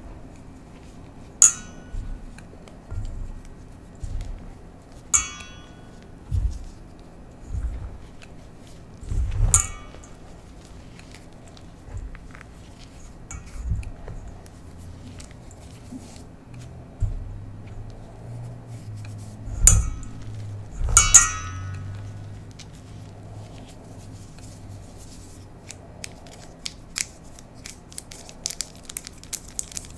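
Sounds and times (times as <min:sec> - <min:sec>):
chalk crackling: 0:17.9 - 0:20.6
hands crunching chalk: 0:21.9 - 0:29.9.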